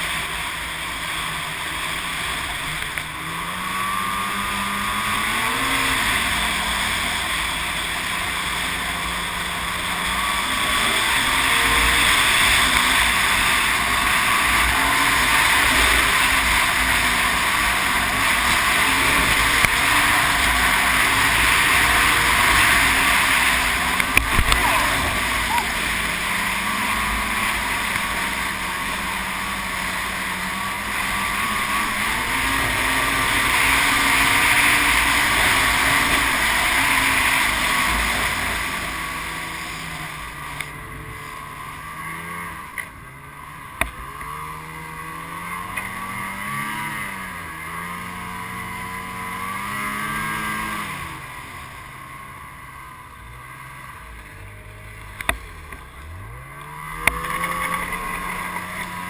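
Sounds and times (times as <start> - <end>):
snowmobile engine revving: 0.0 - 59.0.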